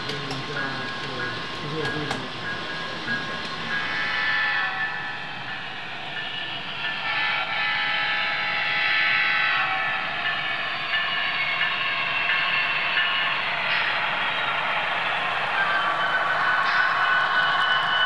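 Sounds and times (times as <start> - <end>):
model train horn chord: 7.0 - 9.9.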